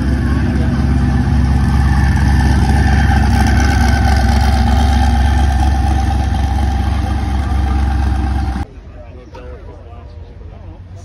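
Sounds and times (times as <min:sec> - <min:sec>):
car engine deep drone: 0:00.0 - 0:08.7.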